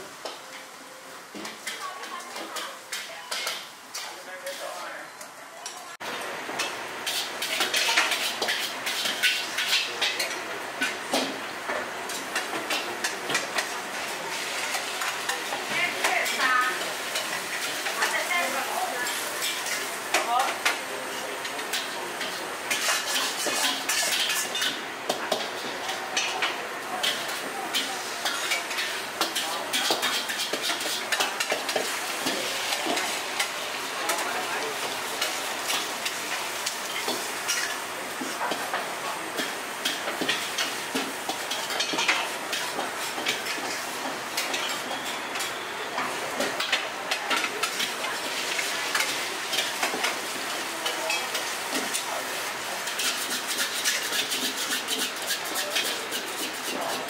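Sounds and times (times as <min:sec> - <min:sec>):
food sizzling in a wok: 0:00.0 - 0:57.0
metal spatula scraping wok: 0:06.6 - 0:10.3, 0:21.7 - 0:38.8, 0:46.5 - 0:57.0.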